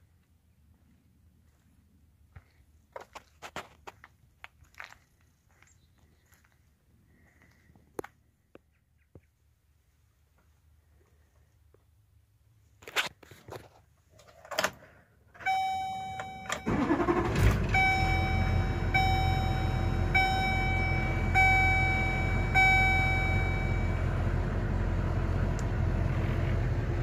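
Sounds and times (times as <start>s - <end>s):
ignition key click: 15.4s - 18.4s
dashboard warning chime: 15.4s - 24.2s
diesel engine cranking and idling: 15.4s - 27.0s.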